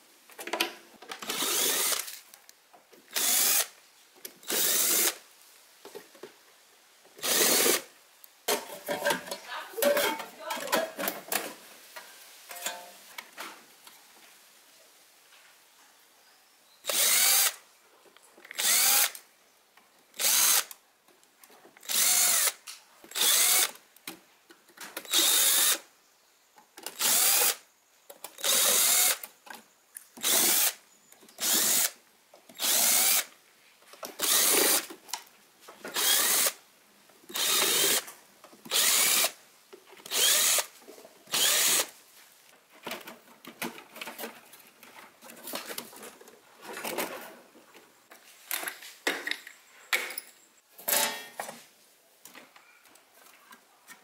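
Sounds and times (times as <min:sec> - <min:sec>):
cordless screwdriver running: 0:01.2 - 0:02.1, 0:03.1 - 0:03.7, 0:04.4 - 0:05.2, 0:07.2 - 0:07.8, 0:16.9 - 0:17.6, 0:18.6 - 0:19.1, 0:20.2 - 0:20.7, 0:21.8 - 0:23.7, 0:25.1 - 0:25.8, 0:28.4 - 0:29.2, 0:30.2 - 0:30.8, 0:32.6 - 0:33.2, 0:34.2 - 0:34.8, 0:36.0 - 0:36.6, 0:37.3 - 0:38.0, 0:38.7 - 0:39.3, 0:40.1 - 0:40.7, 0:41.3 - 0:41.9.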